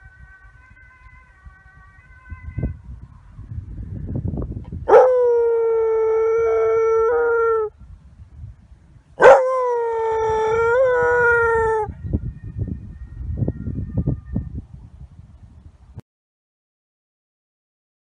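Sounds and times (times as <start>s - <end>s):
dog howling: 4.9s - 7.7s, 9.2s - 12.0s.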